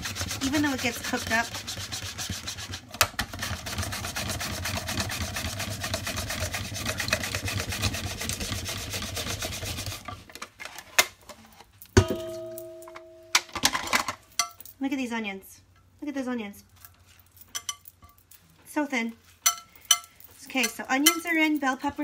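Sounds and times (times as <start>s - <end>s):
mandoline slicer rasping through onion: 0.0s - 10.1s.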